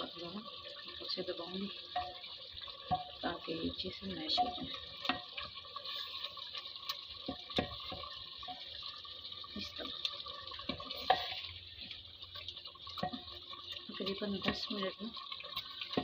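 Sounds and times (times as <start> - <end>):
food sizzling in oil: 0.0 - 16.0
ladle knocking and scraping pot: 1.9 - 6.4, 7.2 - 8.8, 10.6 - 11.6, 13.0 - 13.4, 14.0 - 14.8, 15.6 - 16.0.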